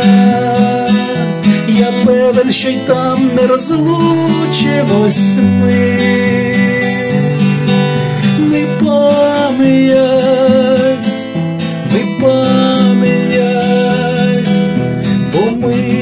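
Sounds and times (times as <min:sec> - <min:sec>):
acoustic guitar strumming: 0:00.0 - 0:16.0
man singing with vibrato: 0:00.0 - 0:16.0.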